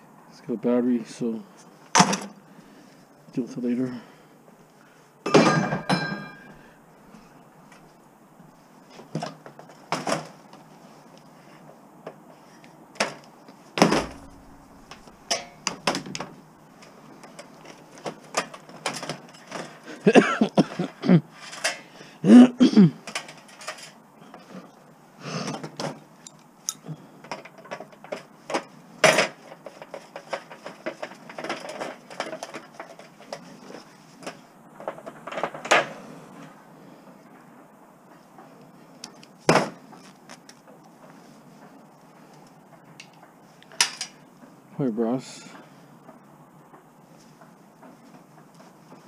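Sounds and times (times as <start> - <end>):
scrap metal clinking and knocking: 5.3 - 6.6, 13.8 - 16.3.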